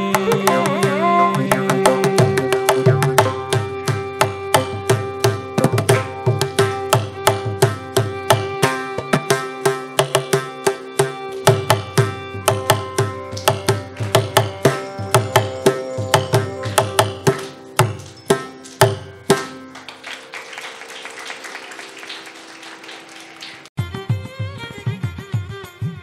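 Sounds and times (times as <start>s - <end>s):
mridangam quick strokes: 0.1s - 19.7s
audience applause: 13.3s - 15.6s, 16.3s - 23.8s.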